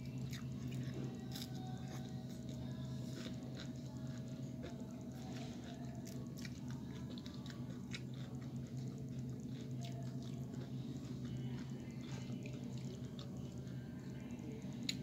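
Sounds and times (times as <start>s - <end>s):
steady low hum: 0.0s - 15.0s
chips crunching while chewed: 0.3s - 13.8s.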